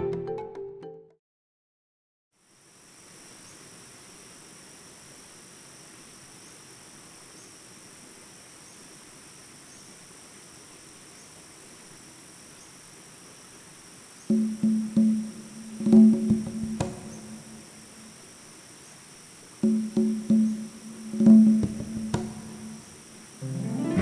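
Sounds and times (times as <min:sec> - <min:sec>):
insect chorus drone: 0:02.4 - 0:23.9
plucked music: 0:14.3 - 0:17.8, 0:19.6 - 0:24.0.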